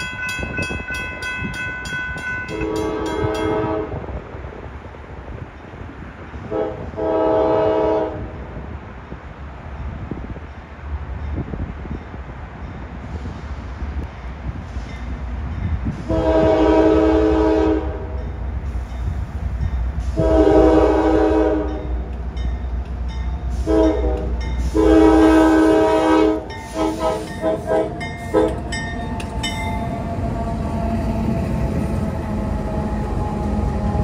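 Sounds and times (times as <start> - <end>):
diesel locomotive low rumble: 0.0 - 34.0
locomotive air horn blasts: 2.4 - 4.1, 6.4 - 8.3, 16.0 - 18.3, 20.0 - 22.1, 23.5 - 28.8.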